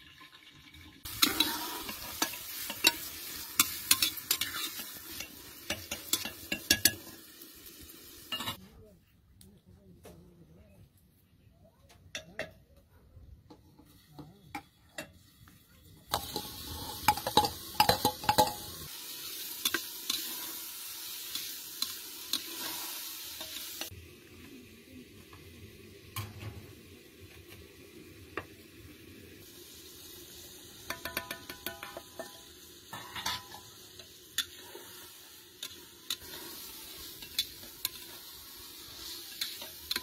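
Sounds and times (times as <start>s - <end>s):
vegetables sizzling in hot oil: 0.0s - 8.6s, 15.9s - 40.0s
metal utensils clicking and scraping: 1.0s - 7.3s, 8.2s - 8.6s, 16.1s - 23.9s, 30.9s - 40.0s.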